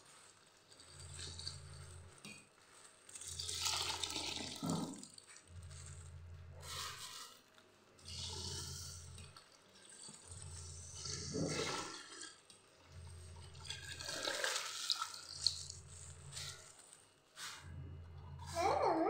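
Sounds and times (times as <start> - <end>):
milk pouring into metal pot: 0.1 - 5.4, 8.0 - 16.9.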